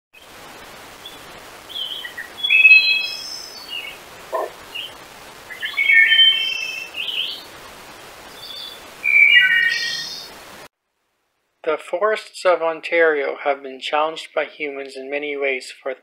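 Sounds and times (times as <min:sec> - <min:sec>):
faint steady hiss: 0:00.2 - 0:16.0
songbirds singing: 0:01.0 - 0:07.5, 0:08.3 - 0:10.3.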